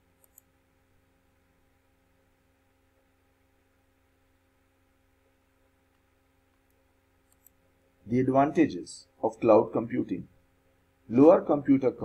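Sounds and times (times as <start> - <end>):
faint electrical hum: 0.0 - 12.0
computer mouse clicking: 0.2 - 0.5, 5.9 - 7.6.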